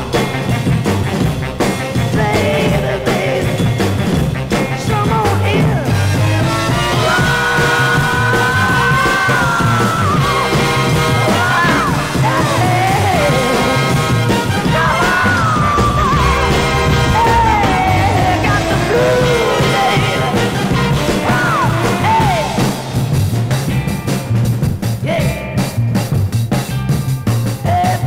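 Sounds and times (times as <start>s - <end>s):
man singing: 1.9s - 10.4s, 11.2s - 22.8s, 25.0s - 25.8s, 27.6s - 28.0s.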